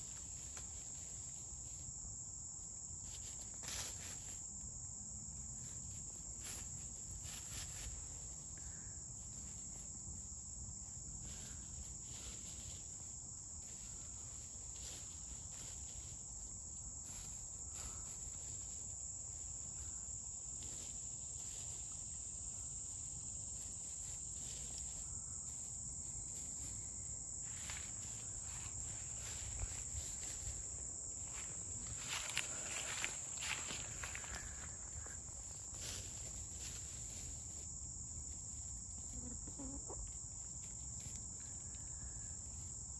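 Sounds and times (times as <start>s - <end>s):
insect chorus: 0.0s - 42.9s
rustling and crunching of leaves: 3.0s - 4.6s, 5.6s - 8.4s, 11.2s - 19.8s, 20.4s - 39.8s
hens scratching in leaf litter: 5.6s - 8.3s, 31.6s - 37.8s.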